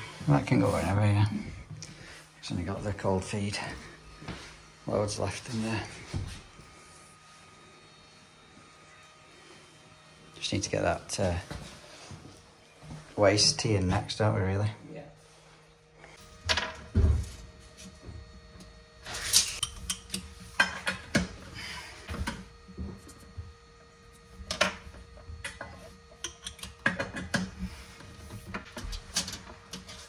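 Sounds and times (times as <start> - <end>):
pipe and tools clicking and knocking: 19.4 - 21.4, 22.1 - 23.4, 24.4 - 30.0.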